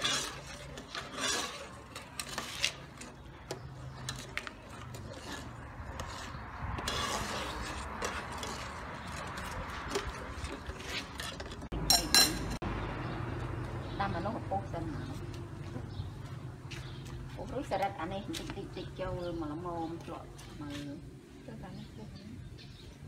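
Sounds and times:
metal ladle scraping in pot: 0:00.0 - 0:12.6.

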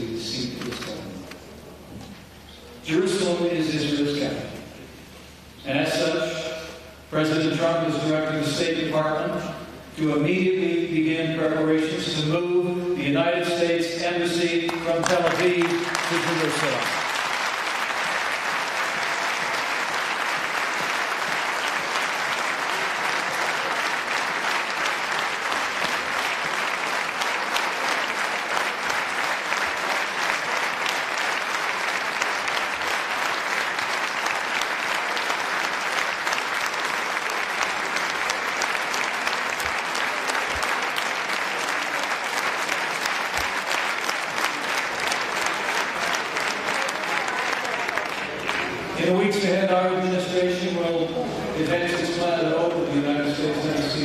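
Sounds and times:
audience applause: 0:14.5 - 0:49.2.

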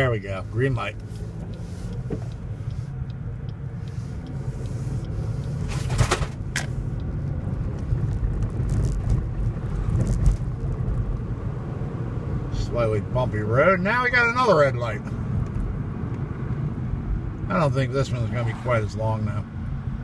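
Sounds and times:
car engine and road rumble: 0:00.0 - 0:20.0
car knocking over bumps: 0:05.7 - 0:06.7.

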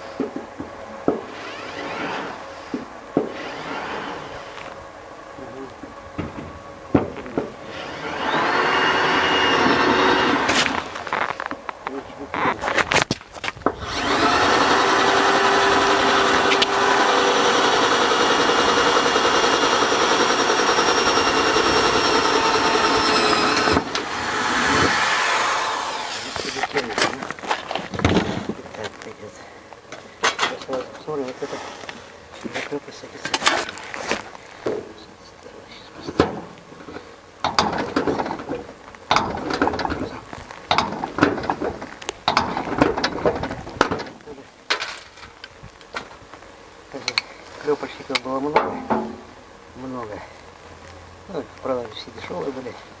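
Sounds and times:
cordless drill boring through sheet steel: 0:01.3 - 0:02.4, 0:03.2 - 0:04.6, 0:07.6 - 0:10.6, 0:13.8 - 0:26.8.

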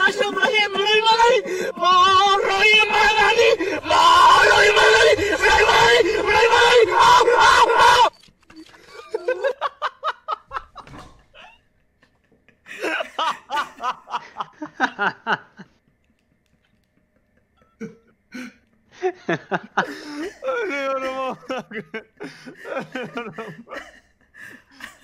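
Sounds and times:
person laughing hard: 0:08.8 - 0:15.7, 0:17.0 - 0:25.0.

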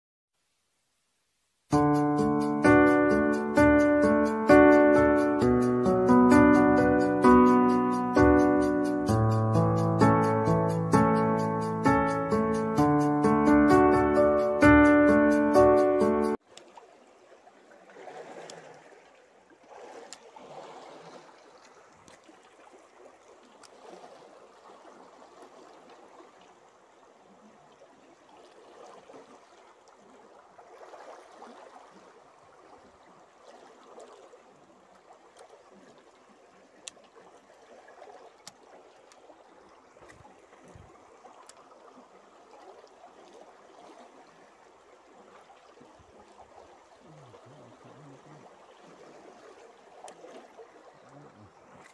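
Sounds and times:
river water rushing and gurgling: 0:15.3 - 0:51.9
faint clicks: 0:41.4 - 0:41.6.

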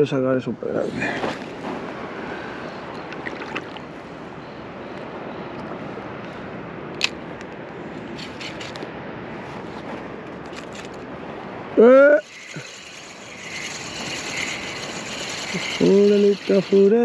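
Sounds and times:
sea water lapping: 0:00.9 - 0:04.2, 0:12.2 - 0:17.0
sharp click: 0:06.9 - 0:07.5
fishing reel ticking: 0:08.2 - 0:08.8, 0:12.1 - 0:17.0.

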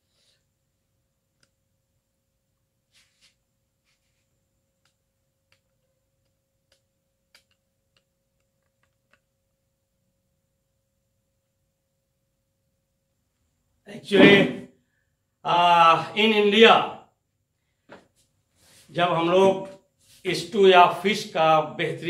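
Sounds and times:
faint clicks: 0:04.8 - 0:09.3.

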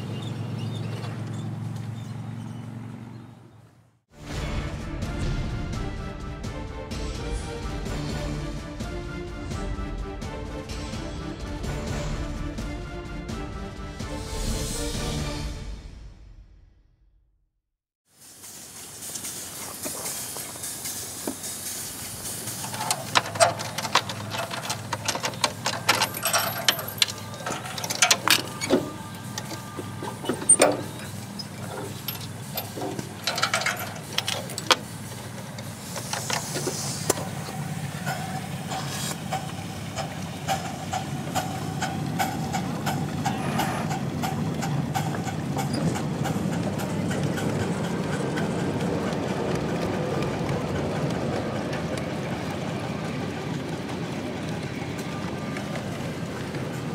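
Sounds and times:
rail cars rolling rumble: 0:00.0 - 0:15.8, 0:18.1 - 0:56.9
metal chain clinks and rattles: 0:22.6 - 0:34.8.

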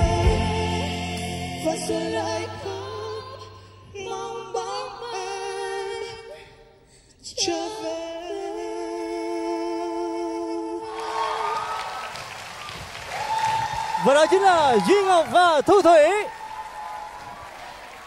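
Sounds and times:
woman and man singing duet: 0:00.0 - 0:06.6, 0:07.2 - 0:11.8.

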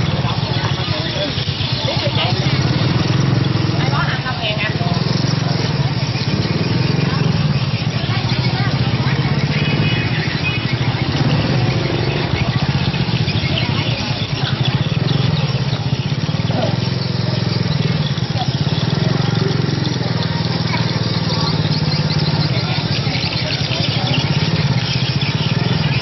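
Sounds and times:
people talking: 0:00.0 - 0:26.0
small motorcycle engine running: 0:00.0 - 0:26.0.

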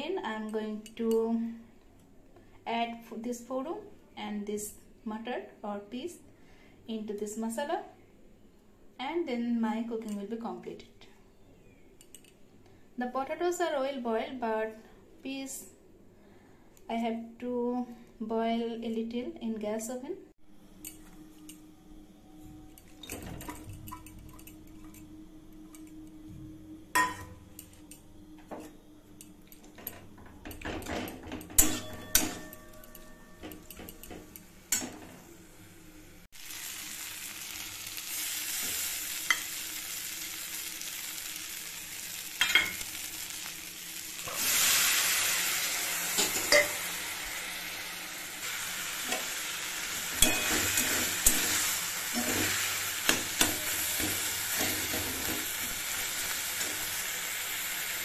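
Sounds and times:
onion and tomato sizzling in wok: 0:26.9 - 0:58.0
spatula scraping and clinking on pan: 0:29.5 - 0:35.1, 0:50.1 - 0:57.0.

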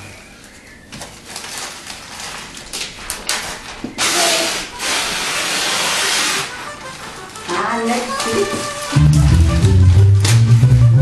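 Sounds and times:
wrapping paper tearing: 0:01.1 - 0:10.5.

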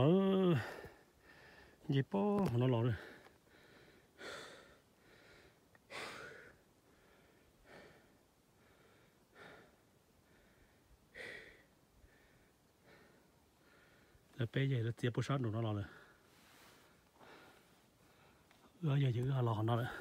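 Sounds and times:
person breathing heavily: 0:00.5 - 0:01.8, 0:03.0 - 0:14.3, 0:15.8 - 0:18.8.

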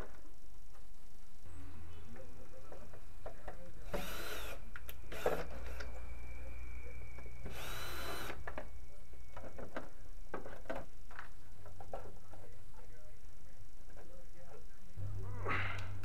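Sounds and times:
steady low hum: 0:00.0 - 0:16.0
power drill running: 0:03.9 - 0:05.8, 0:07.4 - 0:08.4.

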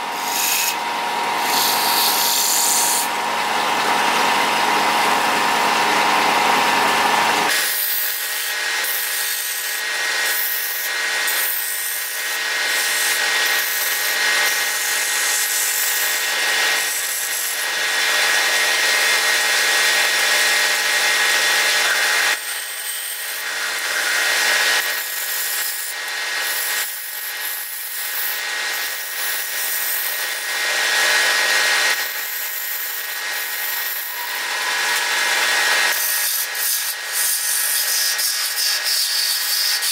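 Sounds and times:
wood lathe whining: 0:00.0 - 0:39.9.

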